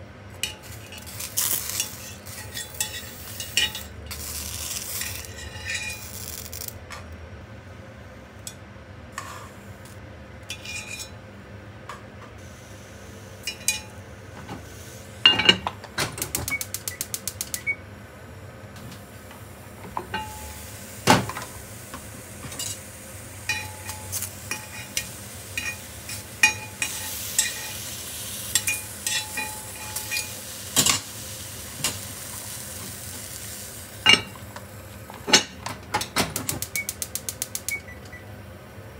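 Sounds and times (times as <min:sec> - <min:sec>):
eggplants sizzling in a pot: 0:00.0 - 0:06.8, 0:19.0 - 0:35.6
metal tongs clinking on pot: 0:00.4 - 0:03.9, 0:13.4 - 0:13.9, 0:23.5 - 0:27.8, 0:28.5 - 0:31.0.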